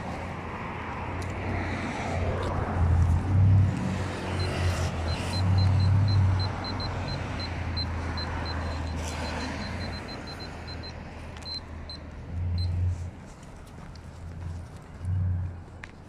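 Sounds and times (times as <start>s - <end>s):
radiation meter beeping: 4.3s - 12.9s.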